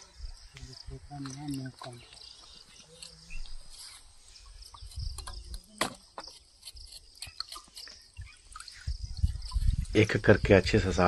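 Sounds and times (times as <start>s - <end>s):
insects chirping in grass: 0.0s - 11.0s.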